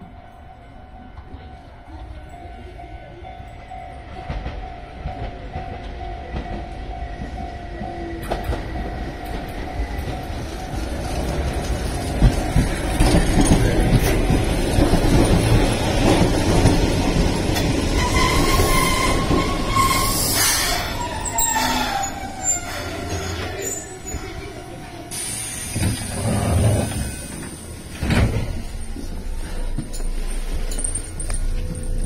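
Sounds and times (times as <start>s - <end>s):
electric train pulling in: 0.0s - 32.0s
wheels clicking over rail joints: 8.2s - 19.9s
brake squeal: 18.0s - 27.3s.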